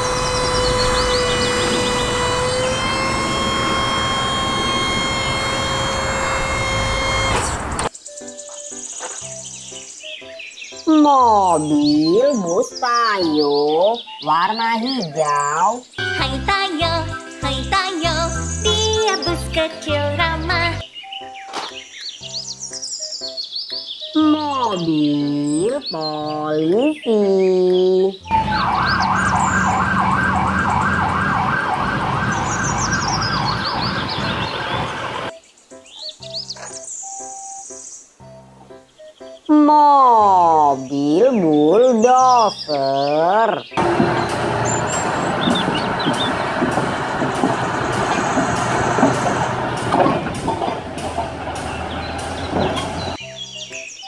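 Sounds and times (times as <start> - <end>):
bulldozer diesel engine running: 0.0 - 7.9, 28.2 - 35.3, 43.8 - 53.2
police siren yelping: 0.0 - 7.9, 28.2 - 35.3
traffic rumble: 0.0 - 7.9, 28.2 - 35.3, 43.8 - 53.2
steel tracks clattering: 43.8 - 53.2.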